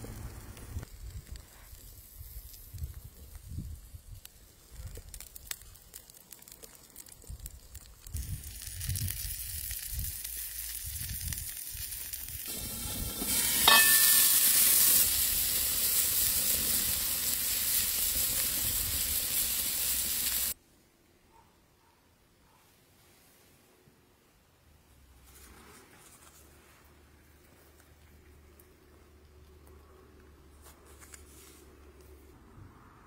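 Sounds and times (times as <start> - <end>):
pizza sizzling in a pan: 0.0 - 20.6.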